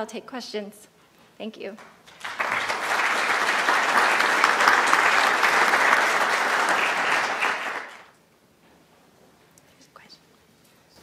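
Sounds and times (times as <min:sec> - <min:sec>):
audience applauding: 0:02.0 - 0:08.2.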